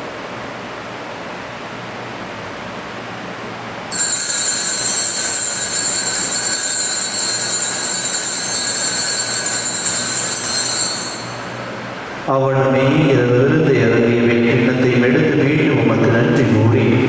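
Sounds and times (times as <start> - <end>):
consecration bell ringing: 3.9 - 12.3.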